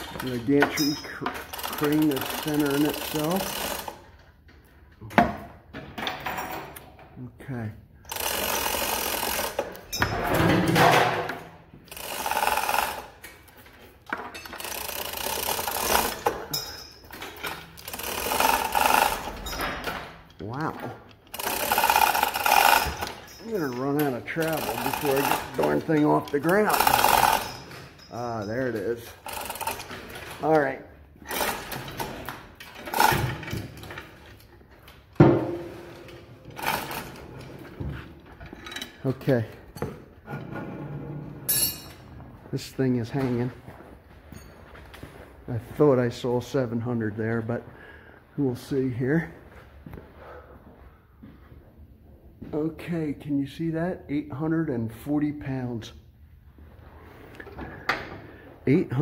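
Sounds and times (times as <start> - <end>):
hoist chain rattling: 0.0 - 4.2, 8.1 - 37.6
ratchet and gears clattering: 0.0 - 4.2, 8.1 - 39.8.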